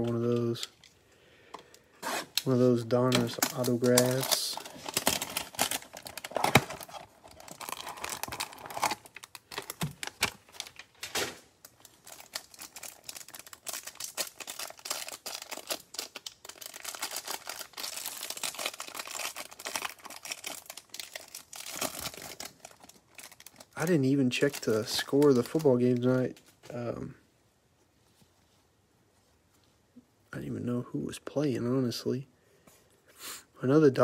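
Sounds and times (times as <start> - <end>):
plastic wrap crinkling and tearing: 2.0 - 26.6.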